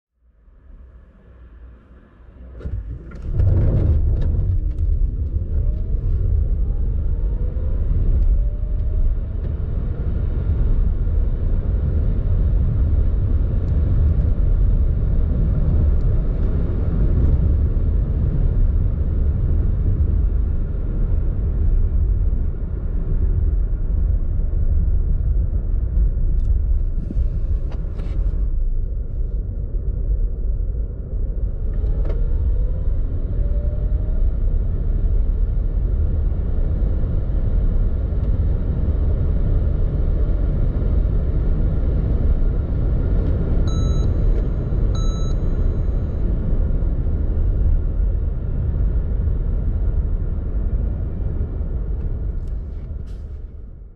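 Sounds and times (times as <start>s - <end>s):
road and tyre rumble: 0.2s - 53.9s.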